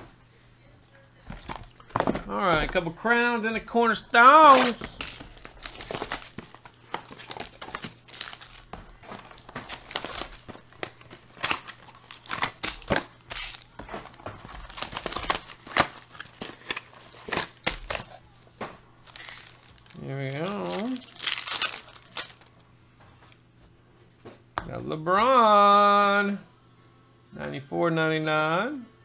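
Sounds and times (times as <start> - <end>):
plastic and foil crinkling: 3.7 - 22.6
sharp snaps of wrapping: 19.1 - 22.5.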